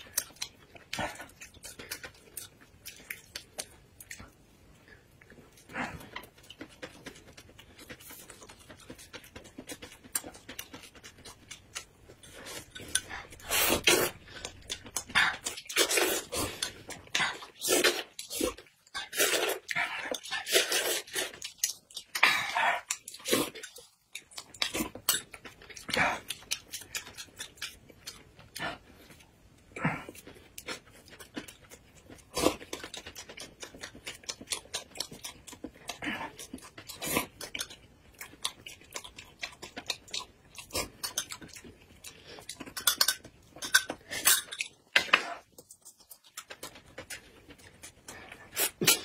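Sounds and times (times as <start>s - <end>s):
chewing: 0.0s - 49.0s
slurping: 12.2s - 23.8s.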